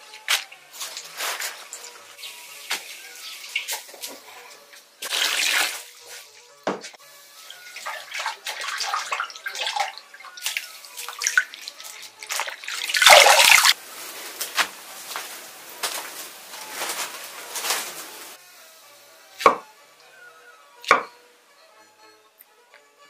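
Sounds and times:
water splashing in a bowl: 0:07.5 - 0:13.8.

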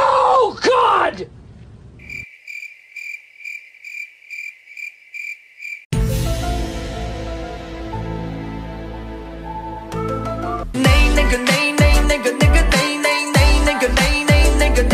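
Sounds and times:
cricket chirping: 0:02.0 - 0:05.9
music: 0:05.9 - 0:14.9.

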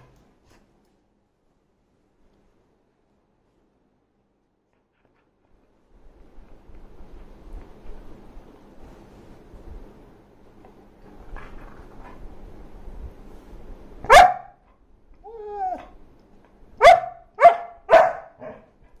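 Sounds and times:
dog barking: 0:14.0 - 0:14.6, 0:16.8 - 0:18.7
dog whining: 0:15.2 - 0:16.0.

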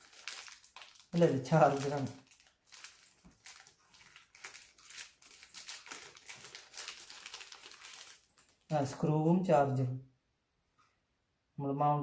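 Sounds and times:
plastic packaging crinkling: 0:00.0 - 0:09.0.

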